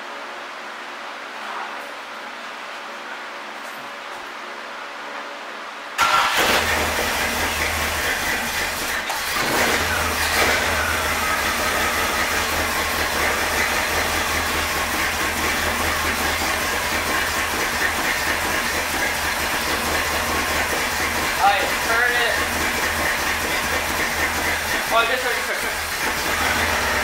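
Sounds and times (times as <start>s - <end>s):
car engine starting and running: 6.0s - 27.0s.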